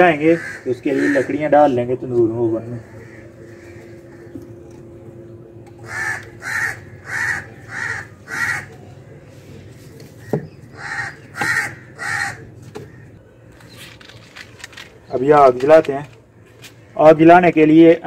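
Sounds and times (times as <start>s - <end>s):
crow cawing: 0.0s - 1.8s, 2.5s - 5.0s, 5.8s - 9.6s, 10.2s - 13.3s.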